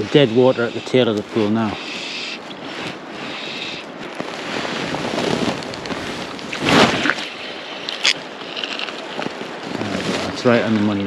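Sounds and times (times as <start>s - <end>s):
wind buffeting microphone: 0.0s - 11.0s
fly line swishing: 5.0s - 9.4s
river water flowing: 6.5s - 9.7s.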